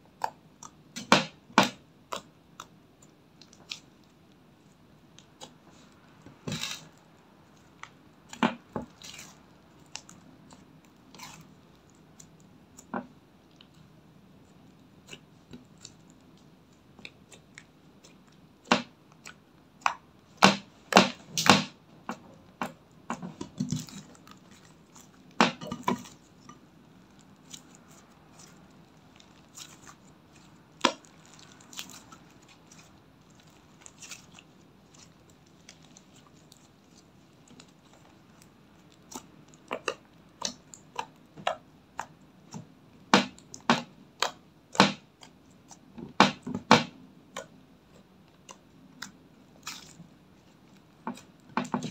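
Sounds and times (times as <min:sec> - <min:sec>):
slime popping and squelching: 0:22.6 - 0:47.5.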